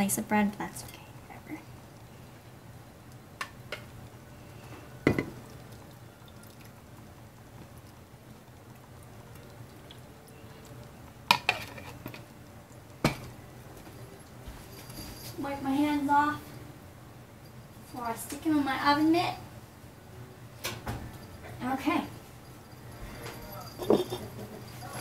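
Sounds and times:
faint low hum: 0.0 - 25.0
dishes clinking: 5.0 - 5.5, 11.3 - 12.3, 22.8 - 25.0.

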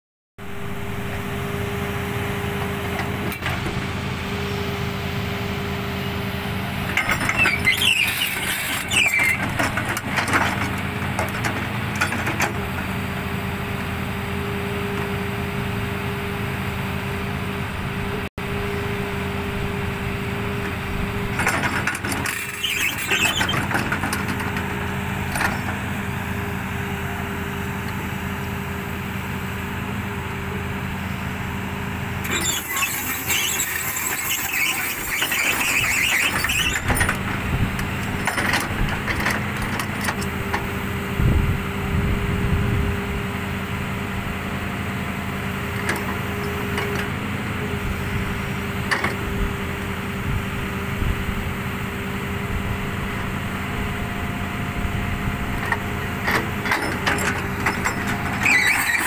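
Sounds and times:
excavator machine drone: 0.4 - 59.0
roller scraping and squealing: 0.5 - 16.4, 20.0 - 29.2, 31.0 - 40.9, 45.6 - 49.3, 55.5 - 59.0.

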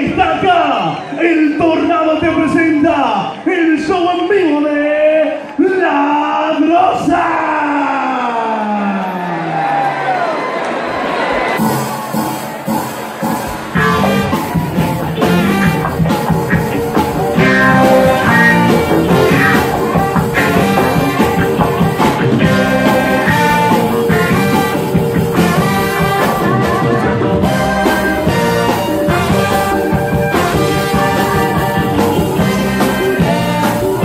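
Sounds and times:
live cumbia band instrumental: 11.6 - 34.0.

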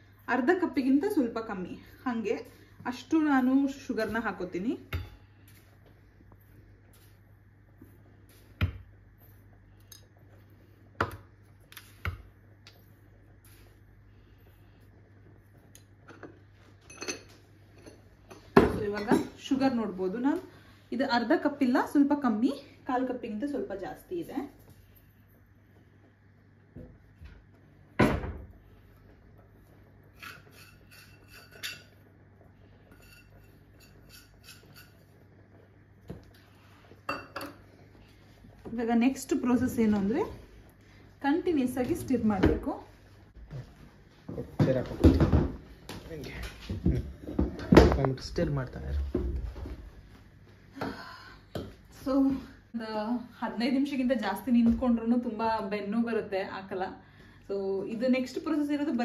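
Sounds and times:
spoon clinking on ceramic and metal: 16.1 - 18.0.

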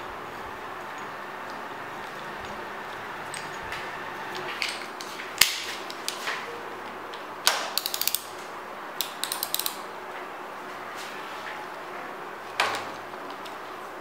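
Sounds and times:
ratchet wrench clicking: 7.8 - 8.3, 9.0 - 9.8.

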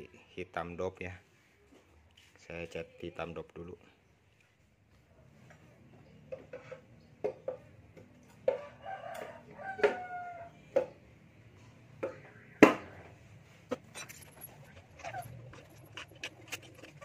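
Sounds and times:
rooster crowing: 8.4 - 10.8
metal tools clinking: 13.7 - 17.0.

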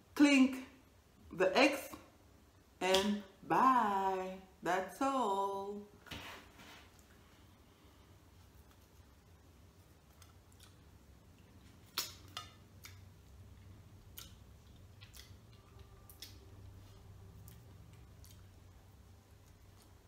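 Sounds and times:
low steady hum: 0.0 - 20.0
chewing and mouth clicks: 10.0 - 20.0.

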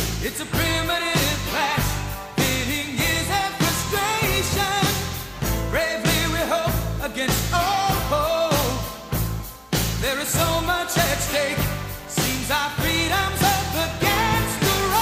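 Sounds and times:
upbeat pop song with vocals: 0.0 - 15.0.

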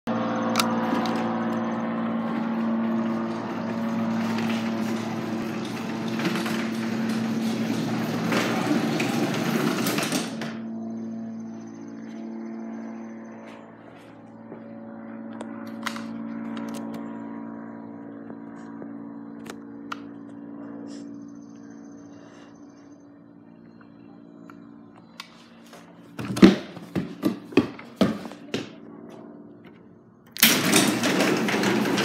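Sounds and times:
garage door opener rumbling: 0.1 - 11.9, 25.5 - 28.8, 30.3 - 32.0.

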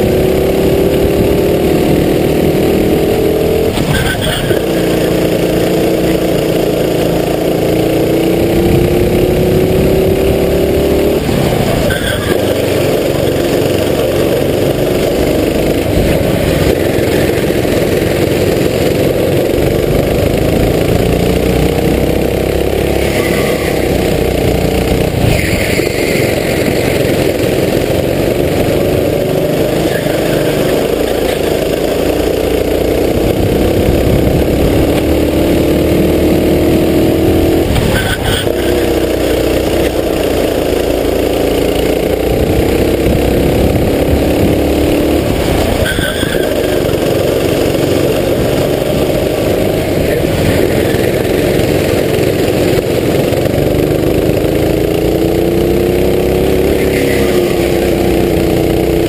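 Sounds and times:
kart engine accelerating: 0.0 - 59.0.

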